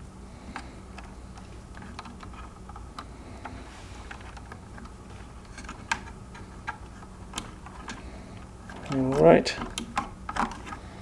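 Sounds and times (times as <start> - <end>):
wires and connectors clicking: 0.5 - 11.0.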